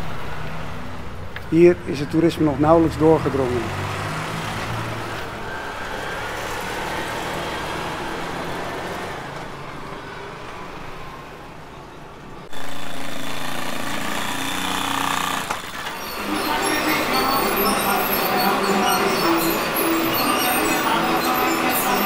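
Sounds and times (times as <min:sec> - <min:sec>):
vehicle engine noise: 0:00.0 - 0:11.7.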